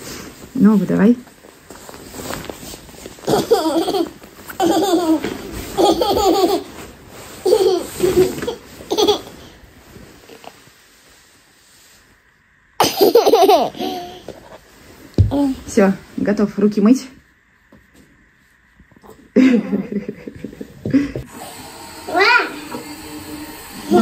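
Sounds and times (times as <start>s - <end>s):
young child laughing: 3.3s - 6.7s, 7.4s - 9.5s, 12.8s - 14.3s.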